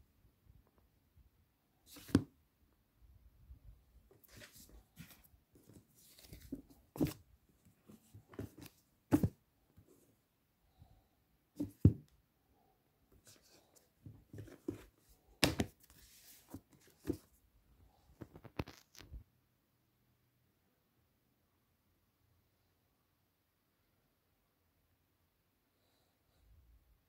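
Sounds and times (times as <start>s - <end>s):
books knocking softly: 1.9s - 2.3s, 4.1s - 7.2s, 7.9s - 9.4s, 11.6s - 12.1s, 13.4s - 17.3s
paper rustling: 1.9s - 2.3s, 4.1s - 7.2s.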